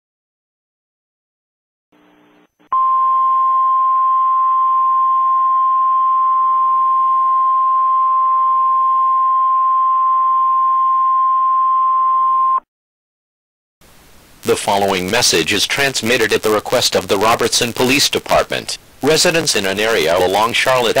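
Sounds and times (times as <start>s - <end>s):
faint hiss: 13.8s - 21.0s.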